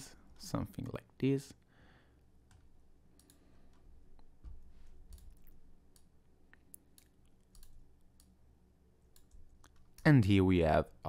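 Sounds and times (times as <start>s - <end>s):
computer mouse clicks: 2.5s - 4.3s, 5.0s - 8.4s.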